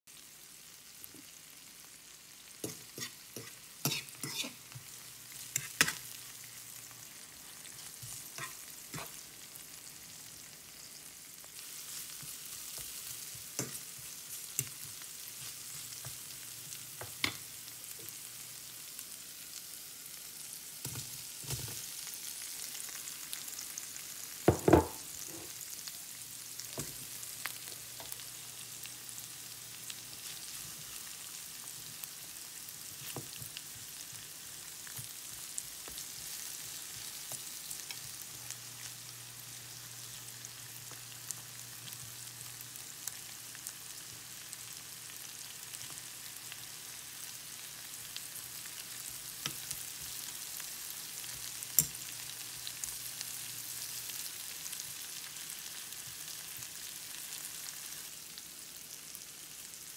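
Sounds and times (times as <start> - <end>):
vegetables sizzling in oil: 0.1 - 59.9
metal spatula scraping pan: 2.7 - 4.6.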